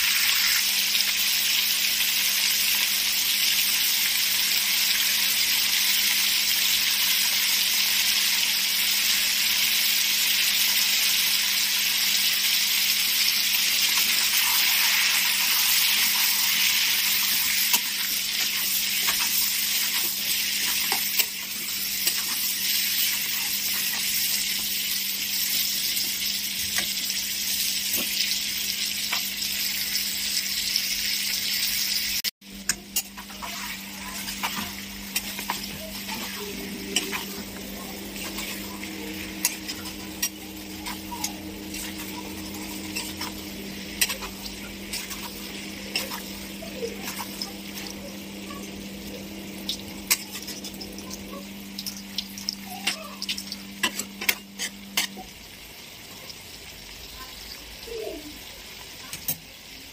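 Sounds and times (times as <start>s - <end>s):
chicken sizzling in oil: 0.0s - 59.9s
metal spatula scraping a pan: 32.9s - 46.4s, 53.8s - 55.2s.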